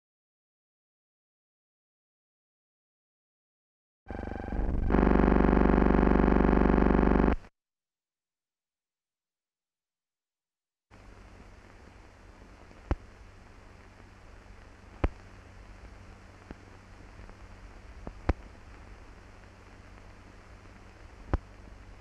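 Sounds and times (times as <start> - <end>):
low hum: 4.1 - 7.4
film soundtrack hiss: 10.9 - 22.0
sharp pops: 15.0 - 15.3.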